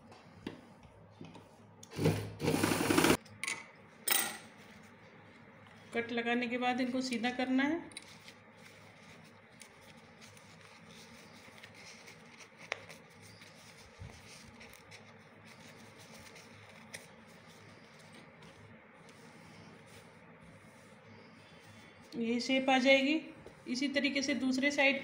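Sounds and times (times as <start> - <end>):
fabric rustling and rubbing: 8.1 - 25.0.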